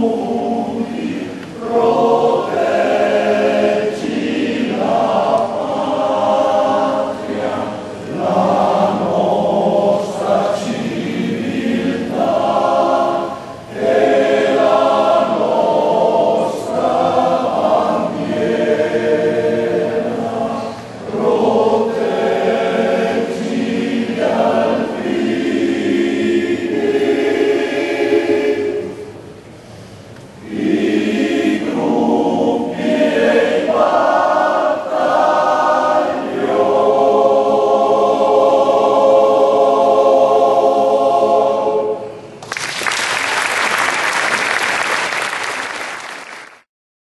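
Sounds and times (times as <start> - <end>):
male choir singing a cappella: 0.0 - 29.2, 30.4 - 42.3
applause: 42.4 - 46.7.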